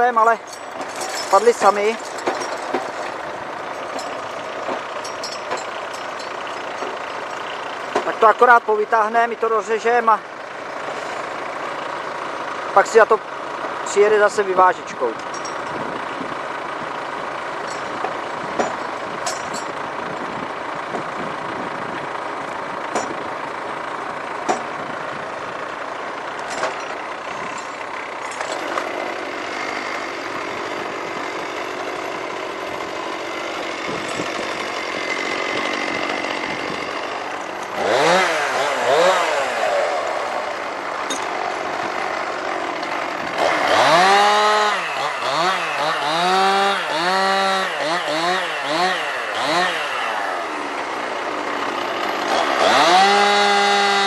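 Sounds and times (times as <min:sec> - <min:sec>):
chainsaw revving: 0:00.0 - 0:08.3, 0:26.4 - 0:54.0
tractor diesel engine running: 0:00.0 - 0:54.0.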